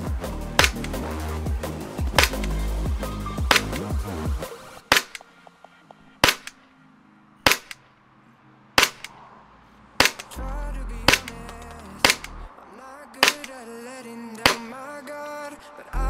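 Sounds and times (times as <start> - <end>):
background music: 0.0 - 16.0
airsoft pistol shots: 0.6 - 1.0, 2.1 - 2.7, 3.4 - 4.0, 4.9 - 5.2, 6.2 - 6.6, 7.4 - 7.8, 8.8 - 9.1, 10.0 - 10.4, 11.1 - 12.4, 13.2 - 13.6, 14.4 - 14.7.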